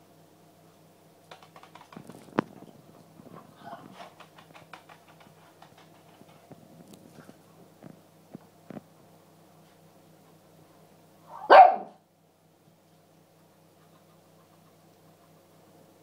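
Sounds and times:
dog claws clicking on tiles: 0:01.3 - 0:02.8, 0:03.6 - 0:07.4
broom tapping and scraping tiles: 0:03.3 - 0:06.6.

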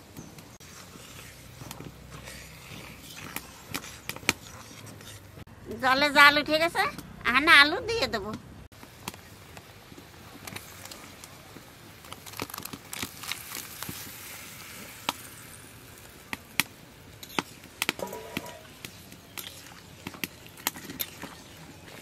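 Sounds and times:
curry simmering: 0:00.5 - 0:05.5, 0:08.7 - 0:22.0
metal ladle clinking against pan: 0:18.0 - 0:18.6.

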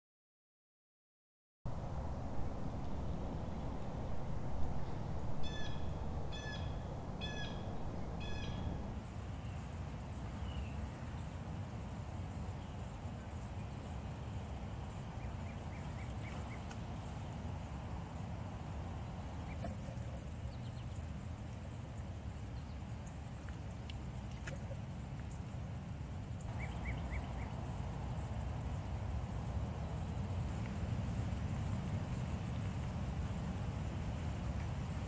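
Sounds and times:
low outdoor rumble: 0:01.7 - 0:35.0
bird calling: 0:05.4 - 0:09.0, 0:15.0 - 0:17.4, 0:19.2 - 0:21.2, 0:26.4 - 0:27.9
faint crackling rustles: 0:06.2 - 0:35.0.

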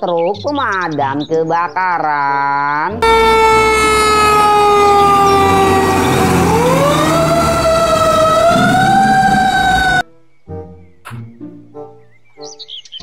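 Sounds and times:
fire truck siren wailing: 0:03.0 - 0:10.0
low engine rumble: 0:03.0 - 0:10.0.

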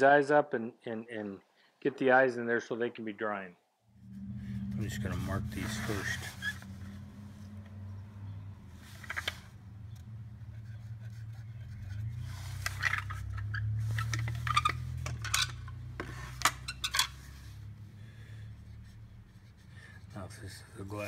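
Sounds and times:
steady low hum: 0:03.8 - 0:12.2.

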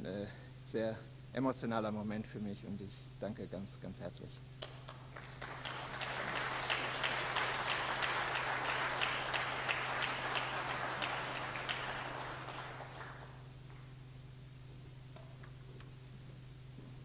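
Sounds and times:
audience applauding: 0:04.6 - 0:13.5.

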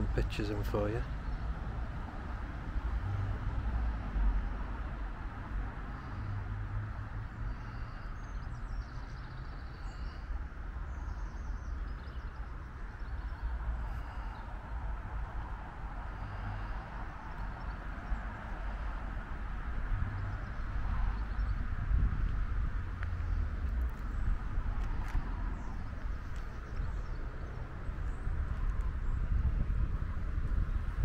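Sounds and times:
small birds chirping: 0:07.2 - 0:14.9, 0:23.0 - 0:29.4.

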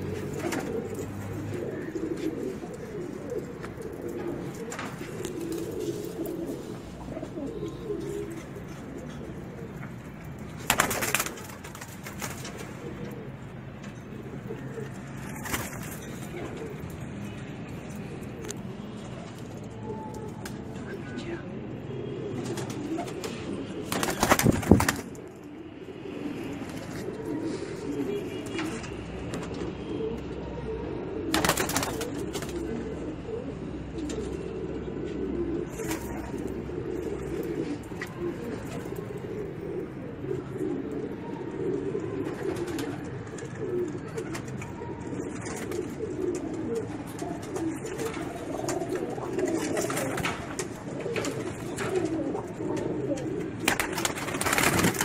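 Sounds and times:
pigeons cooing: 0:00.0 - 0:55.0.

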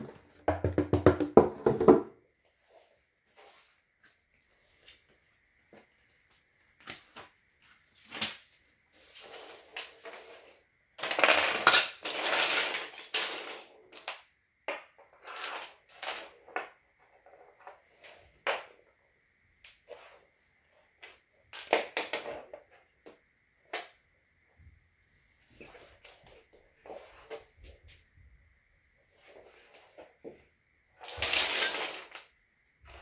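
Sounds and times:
wooden toy pieces knocking on floor: 0:00.5 - 0:02.1
pieces scraping across floor: 0:06.9 - 0:13.7, 0:15.1 - 0:18.6, 0:19.8 - 0:20.3, 0:25.4 - 0:28.0, 0:31.0 - 0:33.0.

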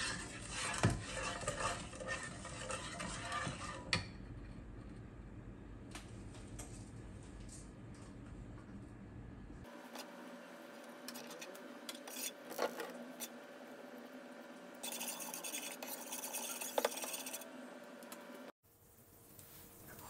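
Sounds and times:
spoon stirring in frying pan: 0:00.0 - 0:04.2, 0:10.8 - 0:18.5.

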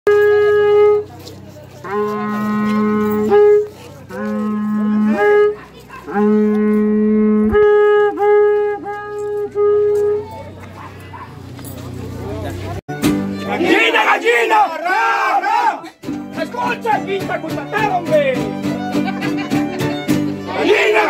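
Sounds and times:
wind instrument long held notes: 0:00.1 - 0:10.7.

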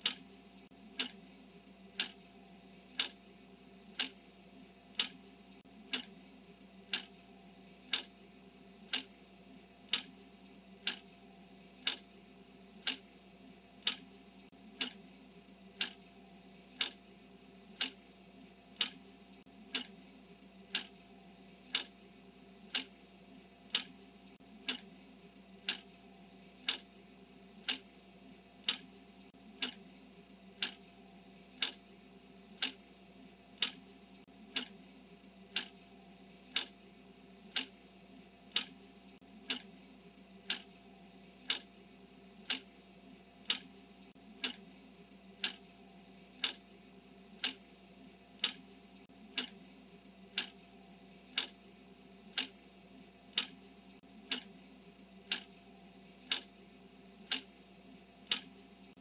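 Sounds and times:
clock ticking: 0:00.0 - 0:00.3, 0:00.9 - 0:01.2, 0:01.9 - 0:02.3, 0:02.9 - 0:03.2, 0:03.9 - 0:04.3, 0:04.9 - 0:06.2, 0:06.9 - 0:08.2, 0:08.8 - 0:12.1, 0:12.8 - 0:13.2, 0:13.8 - 0:15.0, 0:15.7 - 0:16.0, 0:16.8 - 0:17.0, 0:17.7 - 0:20.0, 0:20.7 - 0:21.0, 0:21.7 - 0:22.0, 0:22.6 - 0:23.0, 0:23.7 - 0:25.0, 0:25.6 - 0:25.9, 0:26.6 - 0:26.9, 0:27.6 - 0:28.0, 0:28.6 - 0:29.9, 0:30.5 - 0:30.9, 0:31.6 - 0:31.8, 0:32.5 - 0:32.9, 0:33.5 - 0:34.8, 0:35.5 - 0:36.8, 0:37.4 - 0:37.8, 0:38.4 - 0:39.8, 0:40.4 - 0:40.8, 0:41.4 - 0:41.7, 0:42.4 - 0:42.8, 0:43.4 - 0:44.7, 0:45.4 - 0:45.7, 0:46.3 - 0:46.6, 0:47.3 - 0:49.6, 0:50.3 - 0:50.7, 0:51.3 - 0:51.6, 0:52.3 - 0:52.7, 0:53.3 - 0:54.6, 0:55.2 - 0:56.5, 0:57.2 - 0:59.0
faint steady hum: 0:00.0 - 0:59.0.

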